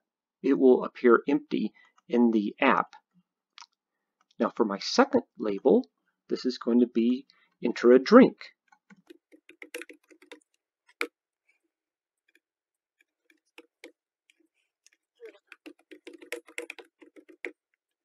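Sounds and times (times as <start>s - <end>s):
faint keyboard typing: 8.7s - 11.1s, 13.0s - 18.0s.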